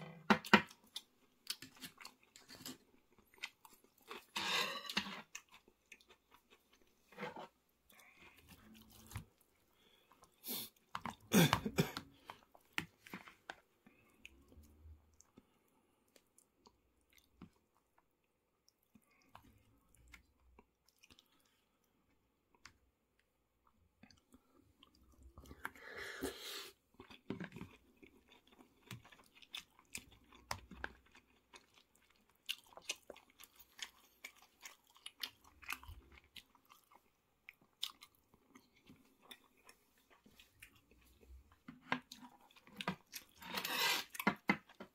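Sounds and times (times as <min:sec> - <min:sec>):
chewing with soft crunches: 0:00.7 - 0:11.3, 0:12.0 - 0:25.8, 0:26.7 - 0:44.9
metal spoon scraping plastic bowl: 0:43.4 - 0:44.1.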